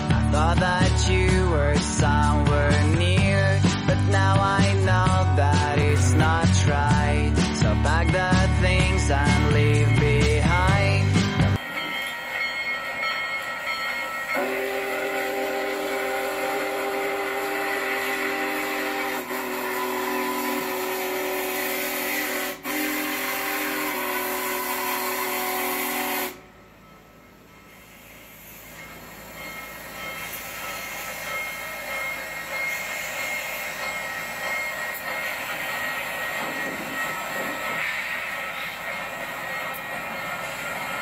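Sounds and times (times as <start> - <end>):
locomotive running past: 0.0 - 41.0
steam whistle chord: 14.2 - 26.7.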